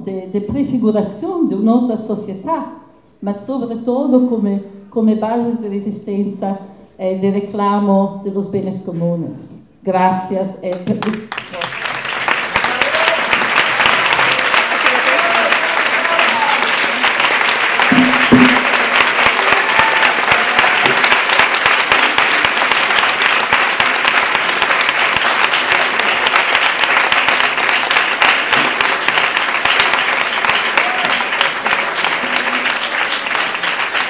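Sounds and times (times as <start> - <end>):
crowd applauding: 10.8 - 34.0.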